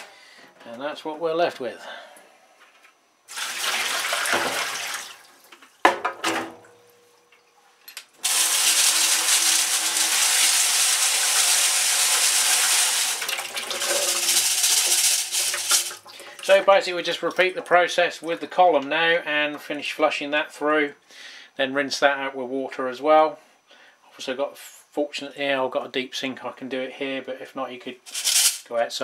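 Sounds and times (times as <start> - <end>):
water pouring into steel sink: 3.3 - 5.4, 8.2 - 17.8
kitchen tap running: 3.3 - 5.7, 8.2 - 18.0.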